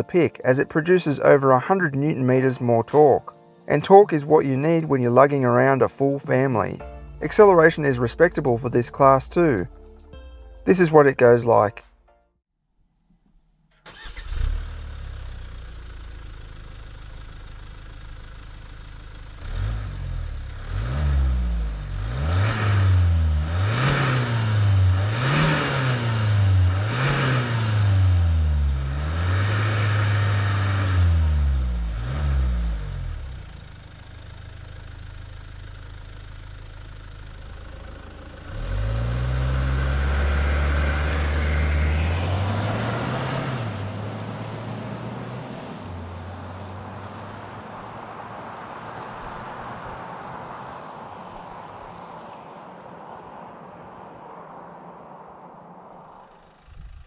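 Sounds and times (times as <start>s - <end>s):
car accelerating away: 13.9s - 57.0s
diesel car engine idling and revving: 13.9s - 57.0s.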